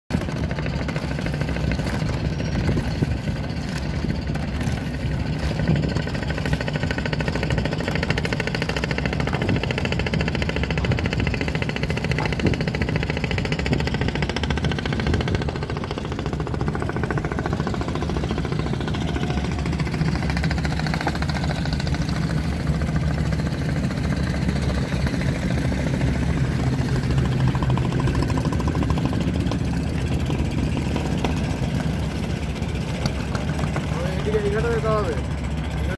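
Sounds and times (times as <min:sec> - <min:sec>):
motorboat engines droning: 0:00.1 - 0:35.9.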